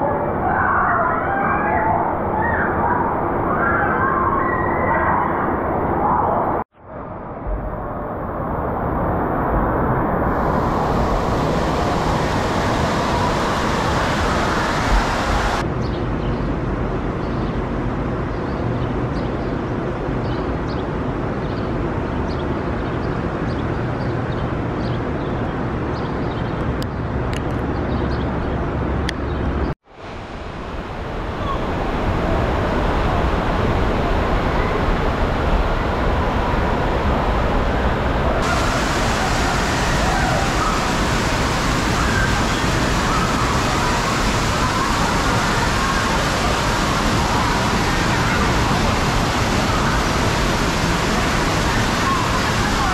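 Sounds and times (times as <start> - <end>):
rushing water: 7.6 - 15.7, 29.8 - 52.9
water churning in pool: 9.8 - 15.6, 30.4 - 52.9.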